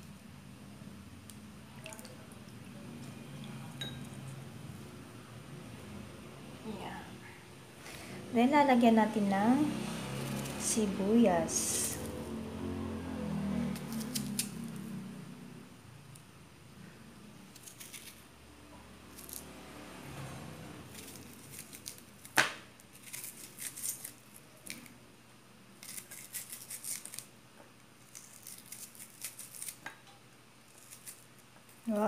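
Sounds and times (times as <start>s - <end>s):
knife slicing onion: 13.7s - 14.7s.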